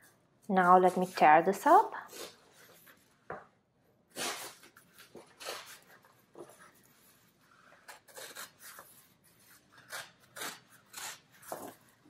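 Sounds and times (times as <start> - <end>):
paper rustling and scraping: 4.2 - 12.0.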